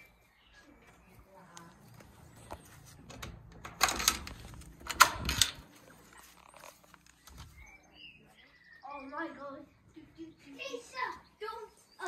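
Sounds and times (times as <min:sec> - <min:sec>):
door latch clicks: 0:03.1 - 0:05.6.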